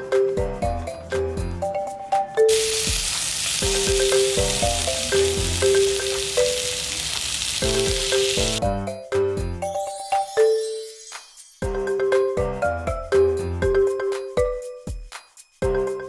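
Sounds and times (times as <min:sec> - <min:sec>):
light background music: 0:00.0 - 0:16.0
meat sizzling on grill pan: 0:02.5 - 0:08.6.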